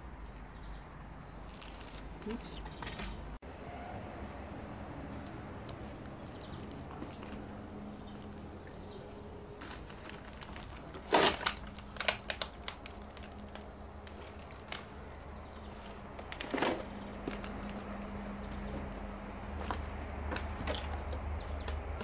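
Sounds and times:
footsteps crunching over rubble: 0:01.4 - 0:03.4, 0:05.2 - 0:22.0
sharp cracks and crackles: 0:05.2 - 0:18.9.

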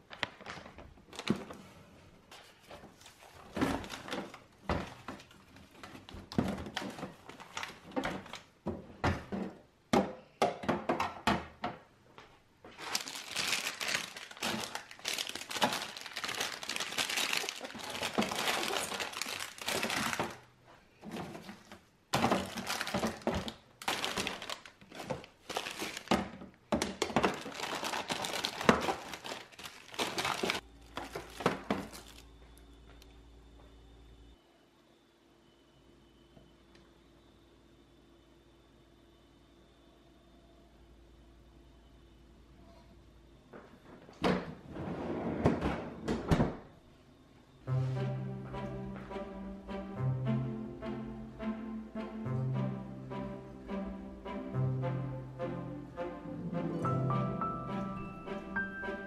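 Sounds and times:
plastic packaging crinkling: 0:00.0 - 0:01.7, 0:12.7 - 0:20.5, 0:21.2 - 0:32.4
faint steady hum: 0:00.0 - 0:58.6
packs knocking on plastic drawers: 0:02.9 - 0:11.9, 0:12.7 - 0:32.2.

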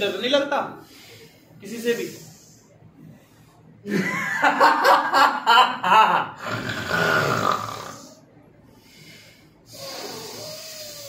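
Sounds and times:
man laughing loudly: 0:03.9 - 0:06.4.

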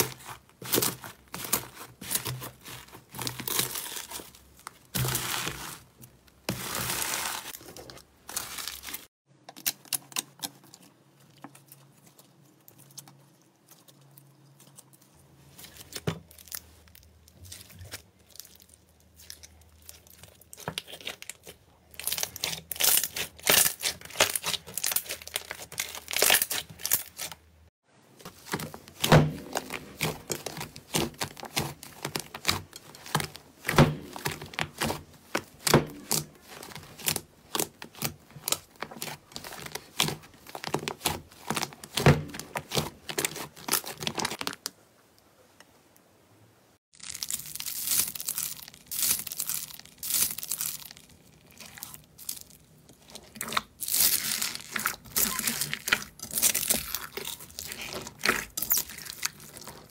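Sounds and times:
slime crackling and popping: 0:17.5 - 0:27.3, 0:46.9 - 0:59.9.

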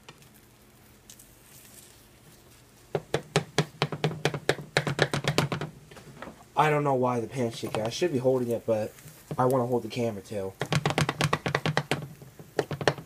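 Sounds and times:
faint sizzling: 0:00.0 - 0:13.0
spatula knocking on frying pan: 0:02.9 - 0:05.8, 0:10.5 - 0:13.0.

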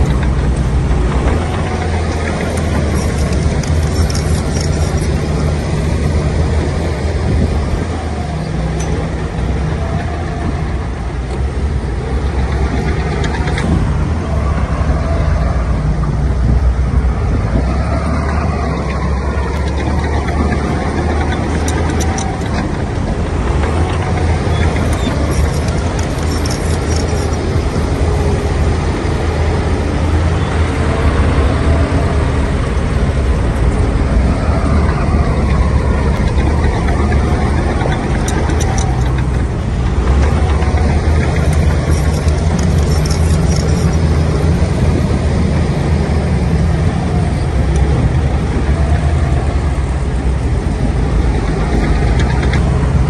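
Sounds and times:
diesel truck engines droning: 0:00.0 - 0:53.0.

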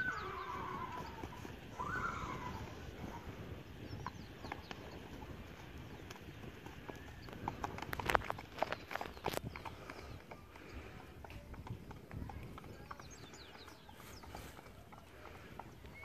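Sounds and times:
horse whinnying: 0:00.0 - 0:02.8
horse hoofbeats on dirt: 0:00.0 - 0:16.0.

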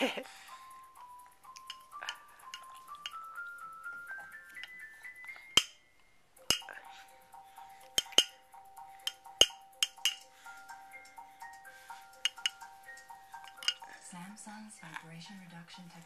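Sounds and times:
toy being shaken and bumped: 0:01.4 - 0:05.8, 0:09.0 - 0:10.8, 0:12.0 - 0:13.9.

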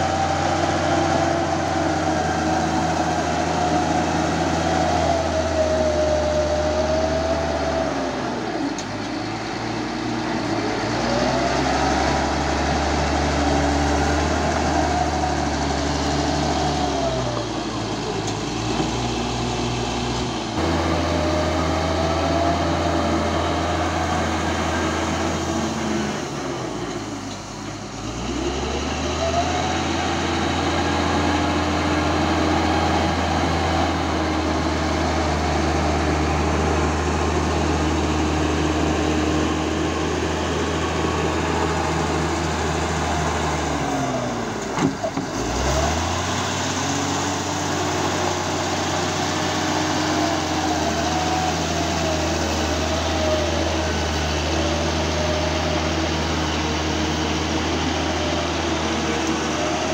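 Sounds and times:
bulldozer diesel engine: 0:00.0 - 0:59.9.

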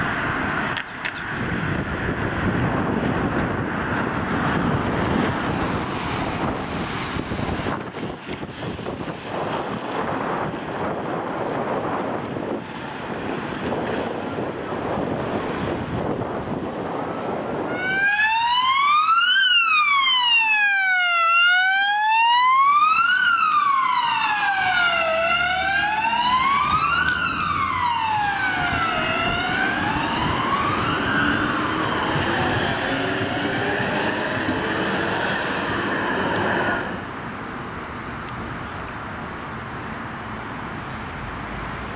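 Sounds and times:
wind noise on microphone: 0:00.0 - 0:19.1, 0:24.0 - 0:41.2
car engine and road noise: 0:00.0 - 0:41.9
electronic siren sweeping: 0:17.6 - 0:37.0.

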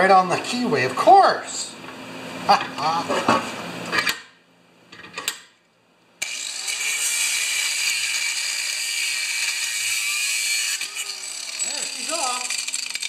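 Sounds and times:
angle grinder grinding steel: 0:06.2 - 0:13.0.

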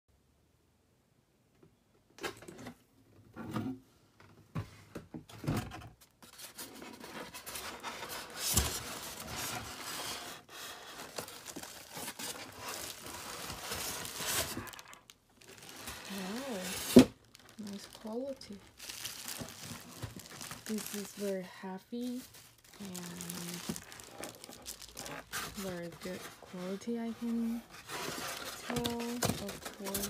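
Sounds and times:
bubble wrap crinkling: 0:07.2 - 0:30.0.

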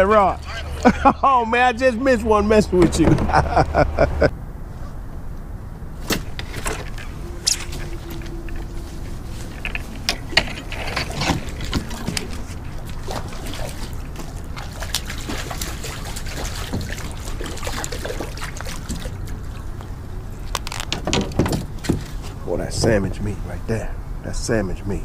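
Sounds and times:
water splashing and trickling: 0:00.0 - 0:03.8, 0:05.9 - 0:23.6
steady low rumble: 0:00.0 - 0:17.6.

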